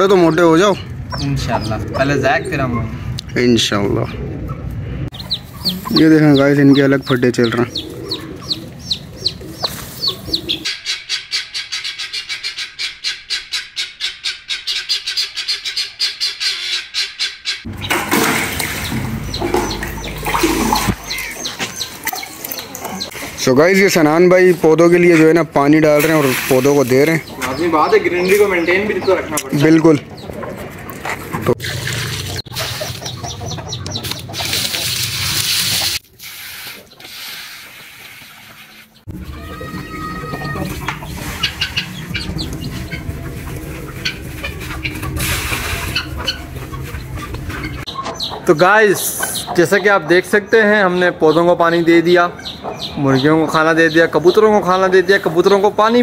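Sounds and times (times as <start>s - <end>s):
chicken clucking: 4.0s - 17.7s, 18.7s - 24.1s, 26.0s - 31.6s, 32.2s - 36.0s, 36.9s - 55.7s
hose spraying water on plants: 34.4s - 38.4s.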